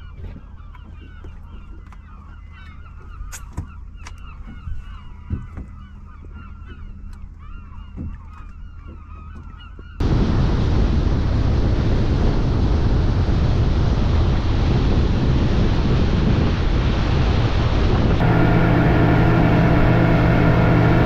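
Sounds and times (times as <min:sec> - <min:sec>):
motorboat rushing: 0:00.1 - 0:21.0
wind on microphone: 0:09.9 - 0:21.0
water rushing past hull: 0:10.0 - 0:21.0.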